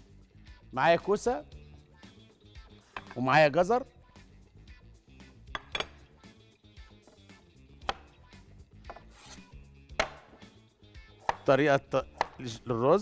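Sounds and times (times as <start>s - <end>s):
quiet background music: 0.0s - 13.0s
knife hitting cutting board: 3.0s - 3.2s, 7.8s - 8.1s, 8.9s - 9.4s, 10.0s - 10.5s, 11.2s - 12.4s.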